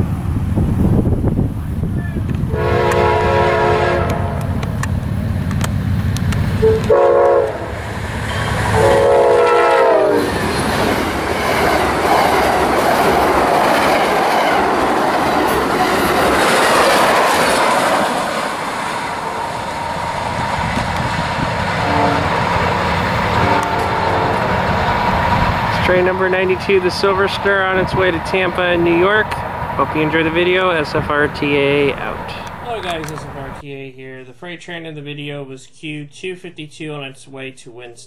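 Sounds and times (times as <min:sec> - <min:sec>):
train horn blasts: 0:02.5 - 0:04.6, 0:06.6 - 0:10.4, 0:19.1 - 0:19.8, 0:21.7 - 0:22.5, 0:23.3 - 0:24.5.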